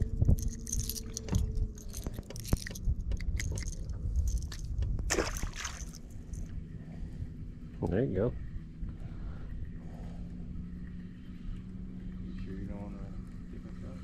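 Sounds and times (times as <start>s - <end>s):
faint steady hum: 0.0s - 14.0s
low rumble: 0.0s - 14.0s
fishing hooks clicking and scraping: 0.3s - 4.8s.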